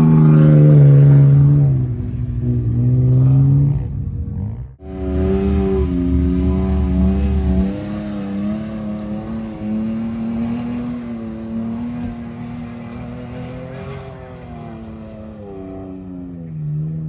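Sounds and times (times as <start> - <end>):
heavy low rumble: 0.0 - 8.5
pickup truck engine revving: 4.8 - 15.7.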